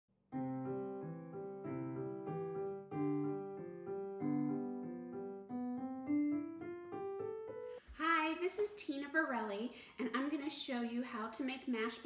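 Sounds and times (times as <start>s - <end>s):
piano-like melodic tune: 0.2s - 7.9s.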